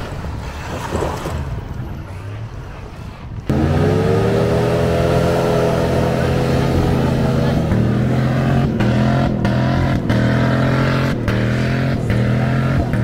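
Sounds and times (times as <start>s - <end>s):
engine running at low revs: 3.2s - 13.0s
engine revving hard: 3.5s - 13.0s.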